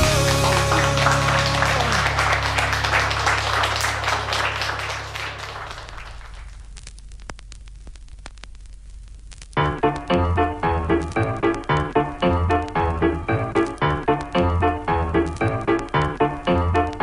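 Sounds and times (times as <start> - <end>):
held low note of rock ballad: 0.0 - 3.5
applause: 0.0 - 6.7.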